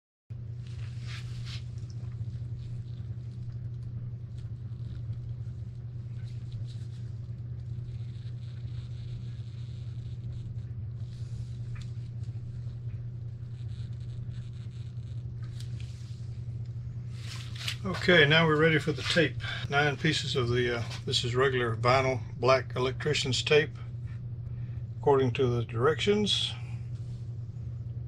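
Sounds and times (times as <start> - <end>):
steady low hum: 0.3 - 28.0
gloved hands rustling and scraping: 0.6 - 1.8, 15.4 - 21.3.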